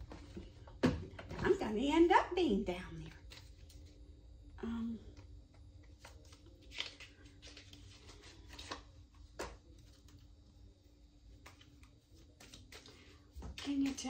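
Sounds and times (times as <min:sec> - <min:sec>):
faint steady hum: 0:00.0 - 0:14.0
cards being shuffled: 0:05.8 - 0:10.3, 0:11.3 - 0:14.0.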